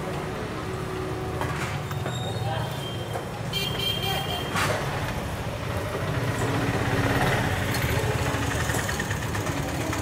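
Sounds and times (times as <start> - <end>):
engine idling: 7.7 - 10.0.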